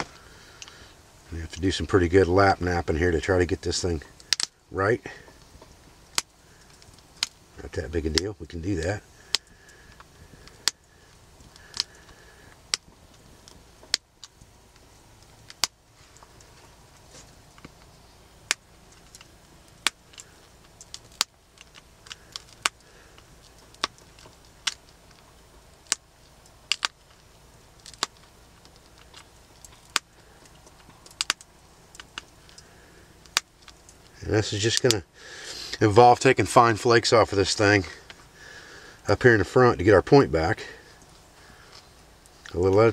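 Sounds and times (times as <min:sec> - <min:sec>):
stone flaking clicks: 0:04.1 - 0:04.6, 0:05.2 - 0:07.4, 0:08.1 - 0:35.0.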